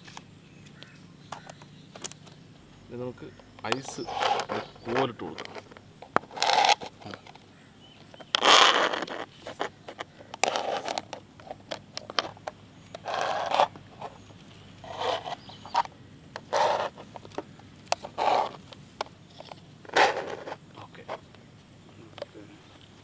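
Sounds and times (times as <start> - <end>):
sticks scraping through plastic lids: 3.6 - 7.4, 8.0 - 21.2.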